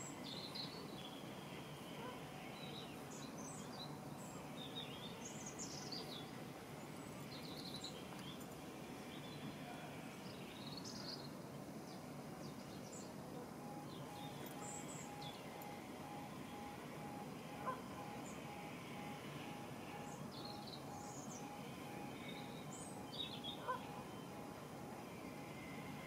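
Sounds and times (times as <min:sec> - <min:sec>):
outdoor background noise: 0:00.0 - 0:26.0
small birds chirping: 0:13.8 - 0:24.4.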